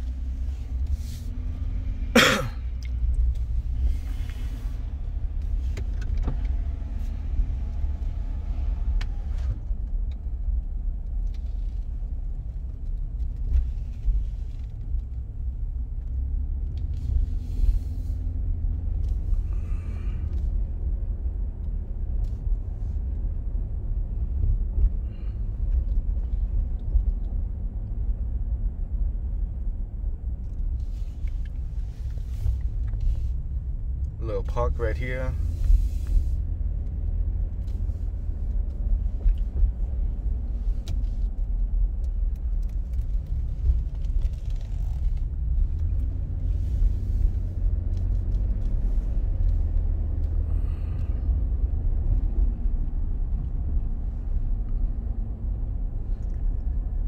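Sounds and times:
vehicle engine and road rumble: 0.0s - 57.0s.

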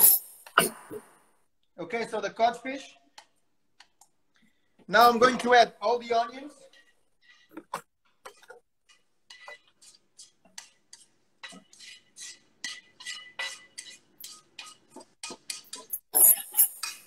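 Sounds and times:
kitchenware clinking and scraping: 11.4s - 17.0s.

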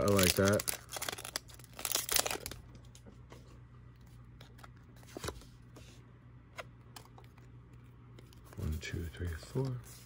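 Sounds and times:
foil wrapper crinkling: 0.0s - 3.0s.

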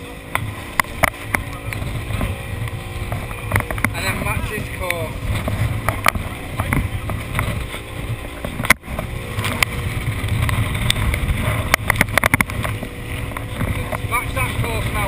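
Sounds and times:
outboard engine running: 0.0s - 15.0s
rush of wind and water: 0.0s - 15.0s.

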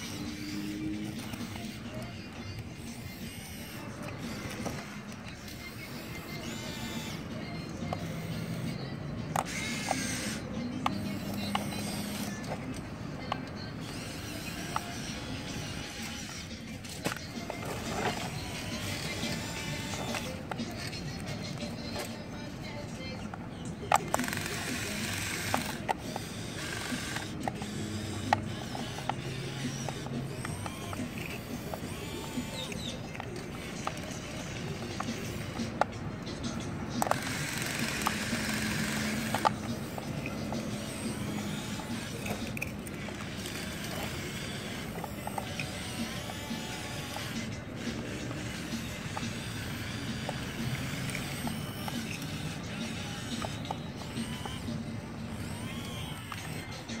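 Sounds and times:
small electric motors whirring: 0.0s - 57.0s
toy excavator mechanical hum: 0.0s - 57.0s
sharp clicks: 23.8s - 57.0s.

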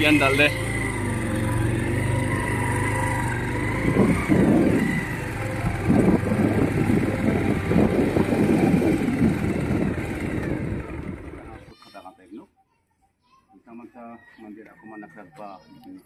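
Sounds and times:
loud irregular rumbling: 0.0s - 11.7s
motorcycle engine running: 0.0s - 11.7s.

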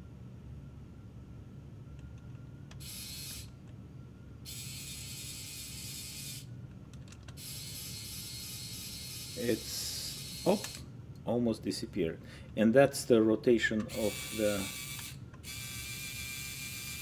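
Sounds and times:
small electric motor whirring: 2.8s - 3.6s, 4.4s - 6.5s, 7.4s - 10.9s, 13.9s - 17.0s.

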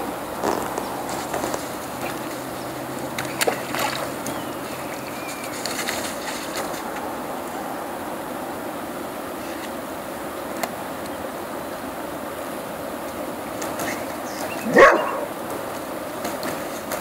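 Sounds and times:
steady rushing noise: 0.0s - 17.0s
dog barking: 14.6s - 15.4s.

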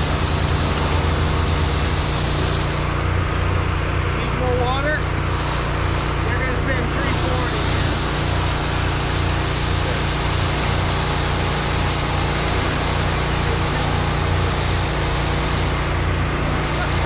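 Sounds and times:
hose spraying water hiss: 0.0s - 3.0s, 7.0s - 17.0s
engine droning: 0.0s - 17.0s.

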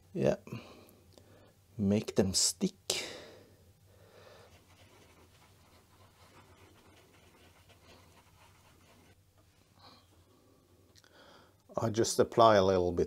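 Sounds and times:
stick scratching on paper: 4.4s - 9.2s.

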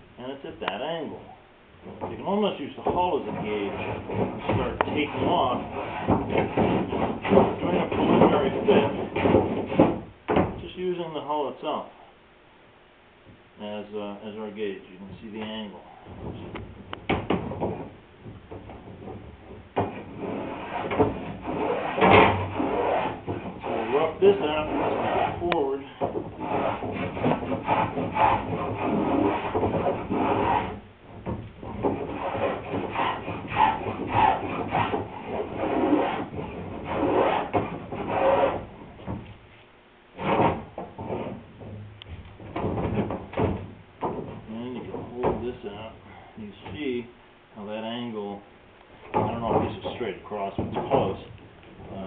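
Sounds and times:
hand plane shaving wood: 2.8s - 10.0s, 19.8s - 30.8s, 31.6s - 38.7s.

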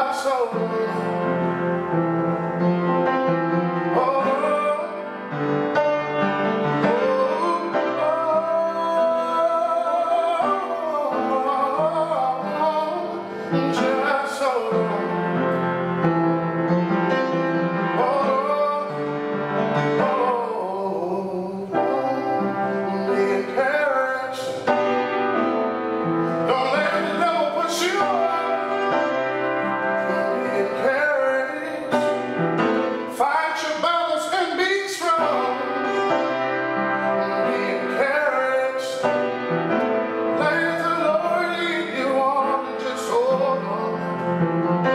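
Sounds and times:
man singing a slow song: 0.0s - 44.9s
upright piano: 0.0s - 44.9s.

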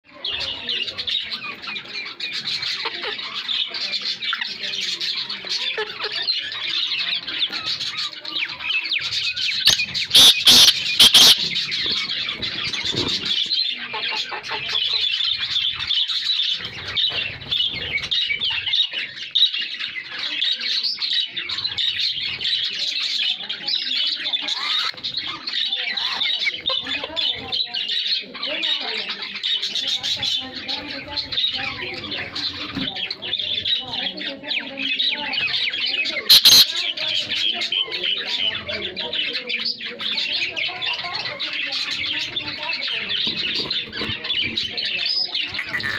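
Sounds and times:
small birds chirping and chattering: 0.0s - 45.9s
francolin harsh calls: 6.2s - 16.9s, 34.8s - 38.2s.

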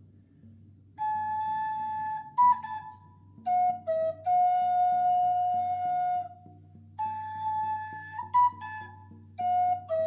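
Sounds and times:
slow instrumental music: 0.0s - 10.0s.

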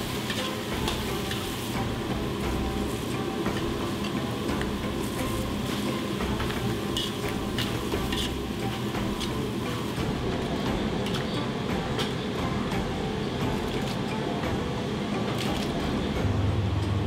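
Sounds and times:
metal ladle scraping wok: 0.0s - 10.0s
food sizzling in a hot wok: 0.0s - 12.9s
ladle clinking against wok: 6.4s - 8.4s.

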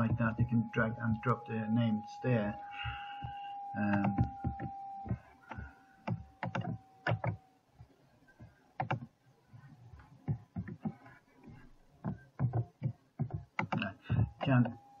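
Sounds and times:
steady high tone: 0.0s - 7.4s
mouse and keyboard clicks: 5.4s - 7.4s, 8.8s - 9.1s, 12.0s - 14.7s.

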